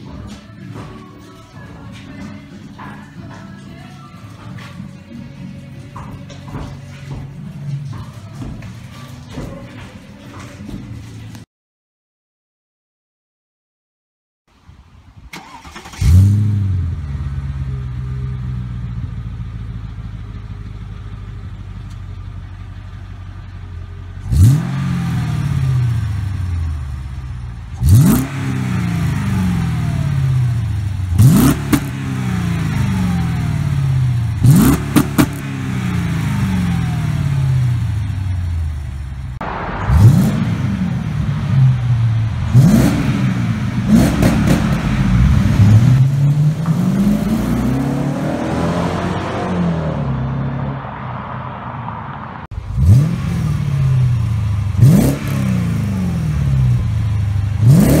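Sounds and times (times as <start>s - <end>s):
car engine starting and idling: 14.6s - 58.0s
engine revving: 15.4s - 19.0s, 24.1s - 58.0s.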